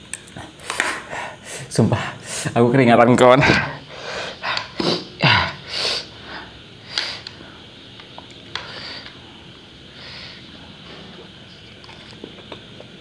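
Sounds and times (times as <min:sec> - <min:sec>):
man breathing sharply and sniffing: 0:00.5 - 0:02.5, 0:03.8 - 0:07.7, 0:08.6 - 0:09.3, 0:09.9 - 0:11.1.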